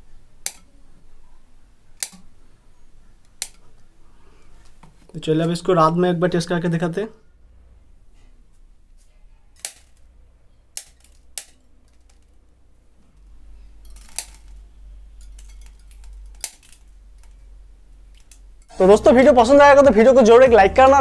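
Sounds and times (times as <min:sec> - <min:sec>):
low hum: 0:12.0 - 0:18.8.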